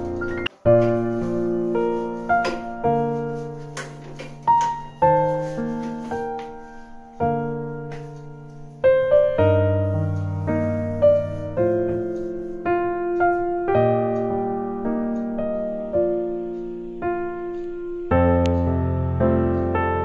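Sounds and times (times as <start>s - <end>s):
slow piano music: 0.0s - 20.0s.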